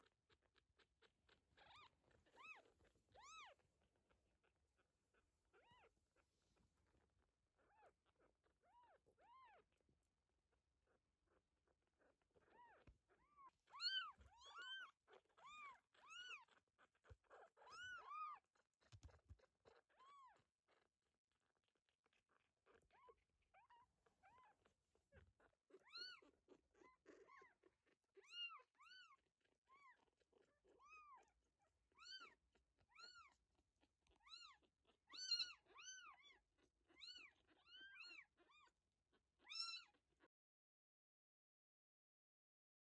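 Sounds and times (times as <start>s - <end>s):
kittens mewing: 0.8s - 3.6s, 12.0s - 20.4s, 34.1s - 38.8s, 39.4s - 40.0s.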